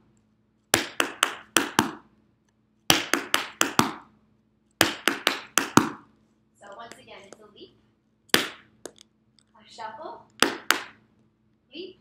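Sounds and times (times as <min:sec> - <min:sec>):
tap shoes on hard floor: 0:02.9 - 0:04.1, 0:04.8 - 0:06.1.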